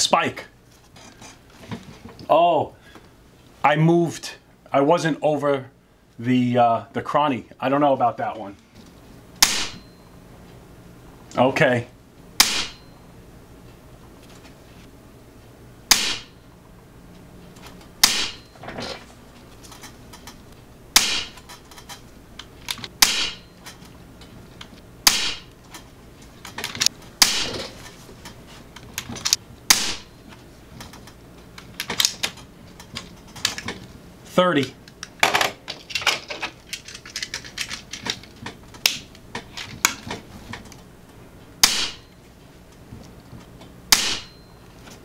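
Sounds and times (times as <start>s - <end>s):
air rifle shots: 9.4s - 9.8s, 12.4s - 12.8s, 15.9s - 16.4s, 18.0s - 18.5s, 20.9s - 21.4s, 23.0s - 23.5s, 25.0s - 25.5s, 27.2s - 27.7s, 29.7s - 30.1s, 41.6s - 42.1s, 43.9s - 44.4s.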